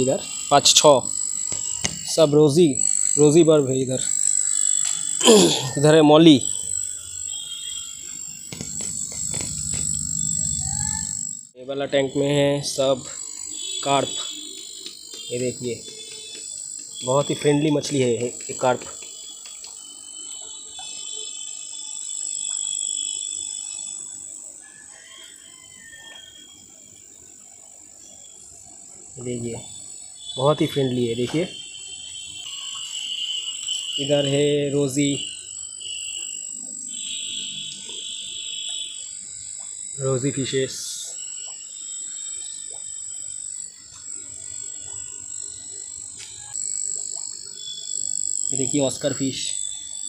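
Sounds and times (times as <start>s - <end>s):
insect chorus drone: 0.0s - 50.0s.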